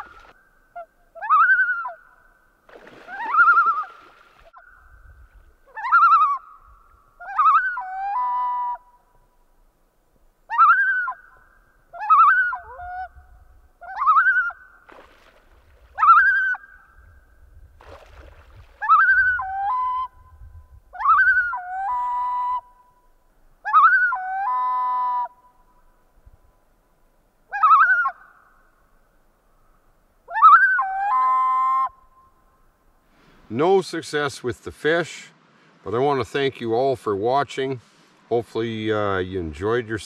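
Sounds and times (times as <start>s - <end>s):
loon calling: 0.0s - 9.1s, 10.5s - 14.8s, 15.9s - 17.1s, 18.8s - 25.6s, 27.5s - 28.7s, 29.6s - 32.4s.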